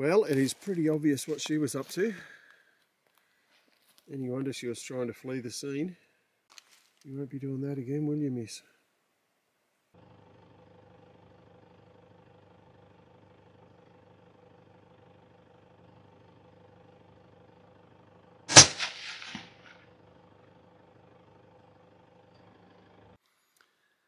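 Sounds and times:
faint bullet impact thud: 18.5s - 19.7s
suppressed rifle shot: 18.5s - 19.8s.

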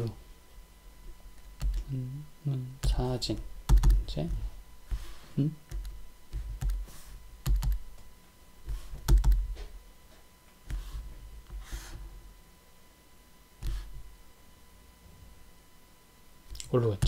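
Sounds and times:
computer clicking: 1.4s - 1.9s, 2.8s - 4.0s, 6.6s - 6.8s, 7.4s - 7.8s, 9.0s - 9.4s.

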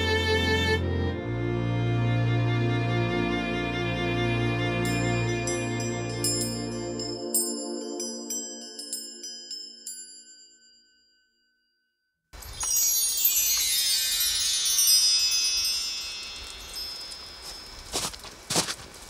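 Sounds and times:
music: 0.0s - 11.0s, 12.5s - 17.6s
cascade of chimes: 4.8s - 18.2s
boot steps crunching in snow: 16.4s - 19.0s.

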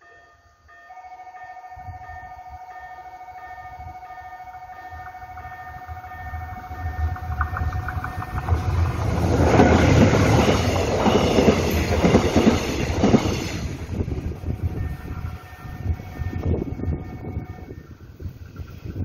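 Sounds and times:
level crossing bell ringing: 0.0s - 8.4s
train rumble and wheel clatter: 3.3s - 19.0s.

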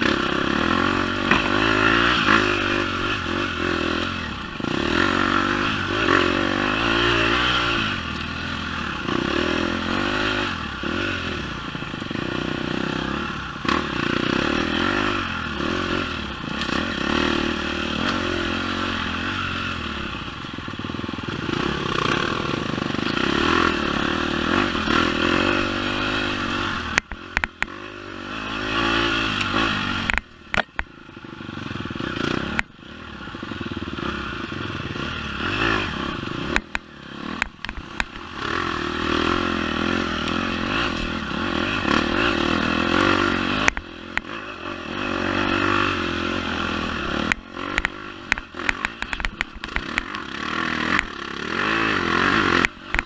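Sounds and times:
dirt bike engine revving: 0.0s - 53.0s
bike knocking and clattering: 37.4s - 38.3s.

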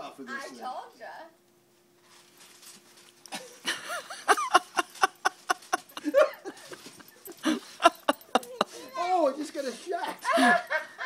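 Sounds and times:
hearty laughter: 3.3s - 8.9s, 10.1s - 11.0s.

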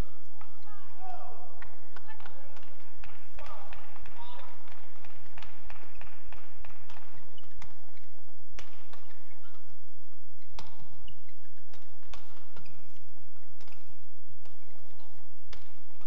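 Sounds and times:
rackets striking shuttlecock: 0.0s - 16.0s
shoe squeaks on court floor: 5.6s - 8.2s, 10.4s - 15.8s.

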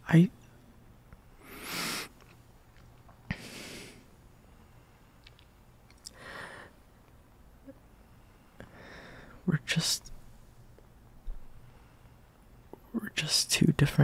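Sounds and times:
man breathing: 3.3s - 5.2s, 6.0s - 6.9s, 8.2s - 9.4s.

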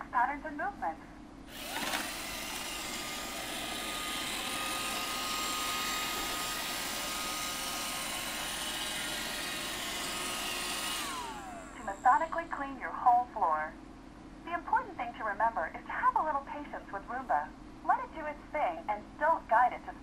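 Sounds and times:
robot vacuum whirring: 1.5s - 12.5s.

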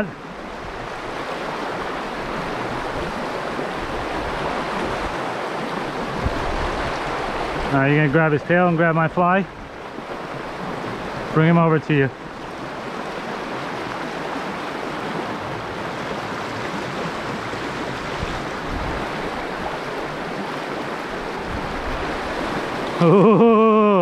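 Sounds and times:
river rushing over rocks: 0.0s - 8.8s, 9.7s - 23.2s
person calling out: 23.0s - 24.0s.

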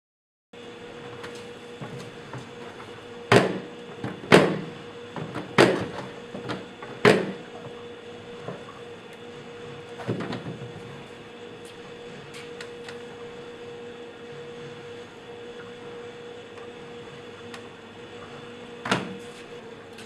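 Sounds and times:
steady hum: 0.6s - 20.0s
plastic bin lid banging: 5.4s - 6.0s.

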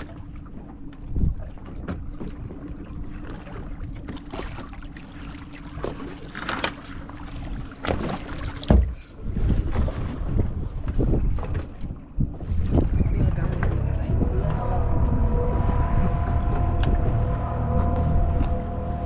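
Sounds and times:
wind noise on microphone: 1.0s - 1.7s, 7.5s - 19.0s
water splashing: 1.4s - 19.0s
boat engine idling: 12.9s - 19.0s.

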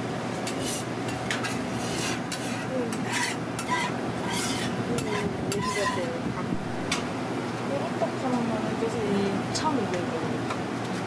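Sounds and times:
metal utensils clinking and scraping: 0.5s - 6.1s.

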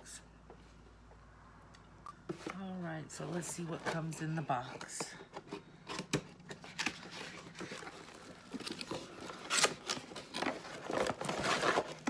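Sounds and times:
cardboard box scraping and rustling: 7.0s - 12.0s.

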